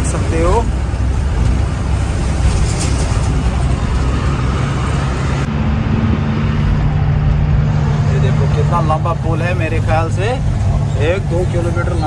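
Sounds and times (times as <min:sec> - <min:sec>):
truck engine and road rumble: 0:00.0 - 0:12.0
smooth low drone hum: 0:03.6 - 0:12.0.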